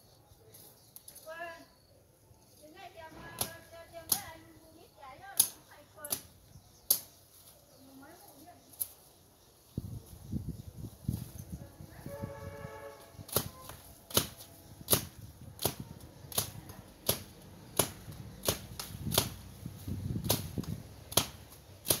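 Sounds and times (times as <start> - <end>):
chopping brush stems: 3.2 - 4.4, 5.3 - 7.6, 13.2 - 22.0.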